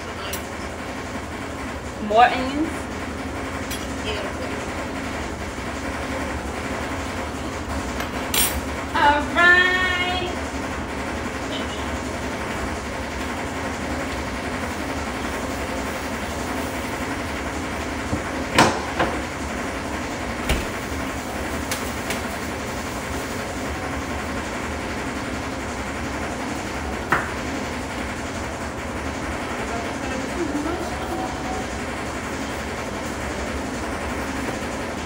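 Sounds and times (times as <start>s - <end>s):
kitchen background rush: 0.0s - 35.0s.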